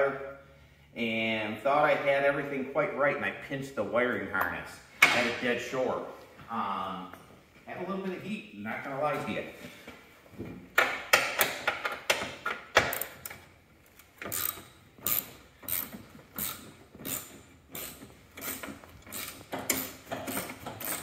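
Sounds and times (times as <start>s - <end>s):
ratchet wrench clicking: 14.2s - 21.0s.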